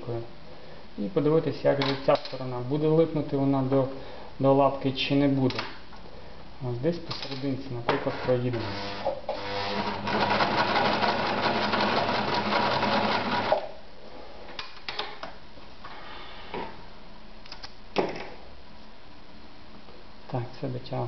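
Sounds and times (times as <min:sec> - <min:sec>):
sewing machine stitching: 0:08.1 - 0:13.6.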